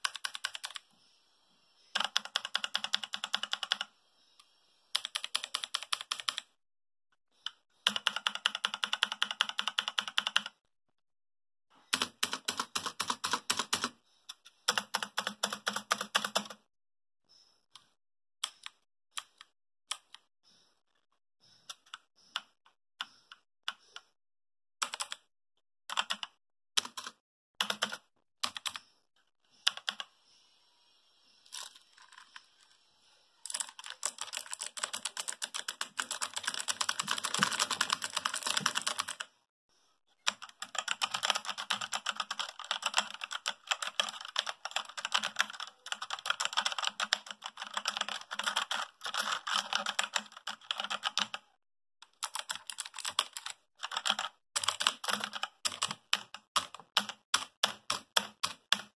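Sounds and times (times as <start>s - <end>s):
mechanical keyboard typing: 0.0s - 0.8s, 1.9s - 3.9s, 5.0s - 6.5s, 7.8s - 10.6s, 11.9s - 14.0s, 14.7s - 16.6s, 24.8s - 25.2s, 25.9s - 28.8s, 33.5s - 39.3s, 40.3s - 51.4s, 52.1s - 58.9s.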